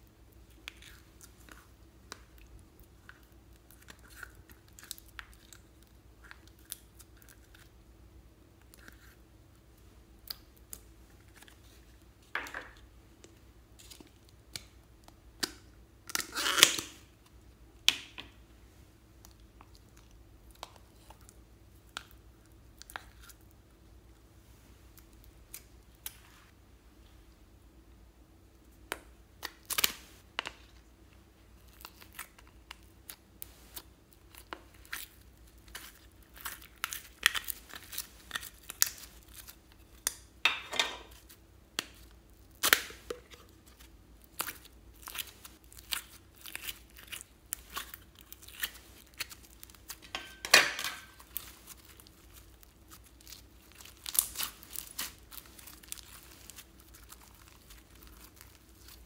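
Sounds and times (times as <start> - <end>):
slime crackling and popping: 31.6 - 40.3, 41.1 - 50.2, 51.0 - 59.0.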